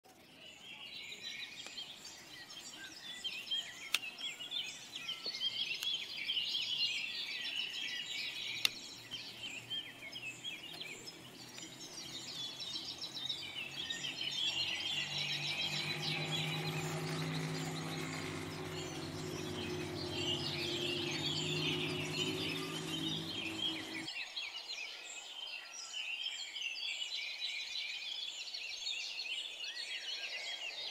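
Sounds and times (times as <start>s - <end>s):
small birds chirping: 0.1s - 24.7s.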